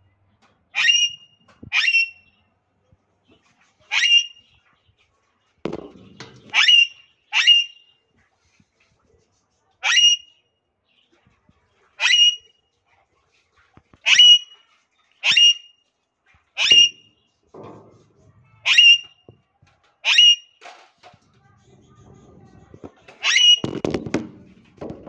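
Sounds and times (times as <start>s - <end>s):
parakeet squawking: 3.9s - 4.4s, 6.5s - 7.8s, 12.0s - 12.4s, 14.1s - 14.6s, 15.2s - 15.6s, 16.6s - 17.1s, 18.6s - 19.2s, 20.0s - 20.5s, 23.2s - 23.8s.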